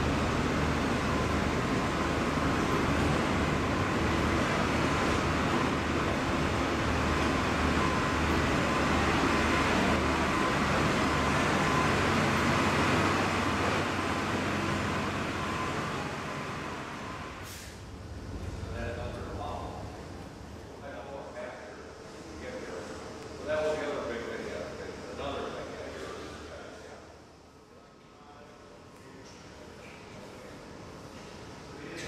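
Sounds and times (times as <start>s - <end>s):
truck engine droning: 0.0s - 20.9s.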